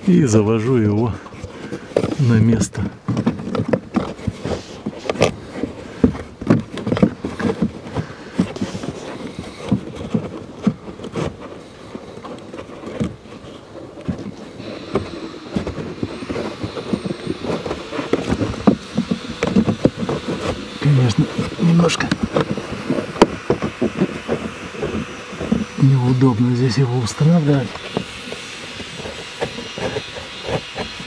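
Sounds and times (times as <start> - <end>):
filter rustling and scraping: 0.0 - 31.0.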